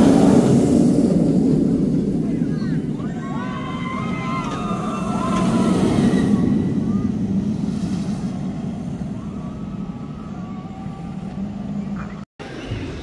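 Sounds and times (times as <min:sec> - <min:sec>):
roller coaster train rumbling past: 0:00.0 - 0:13.0
riders screaming: 0:02.3 - 0:07.2.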